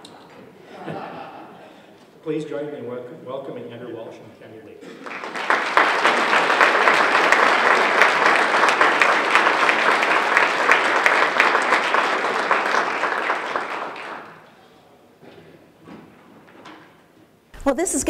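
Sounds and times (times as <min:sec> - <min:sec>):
audience applauding: 0:04.8 - 0:14.6.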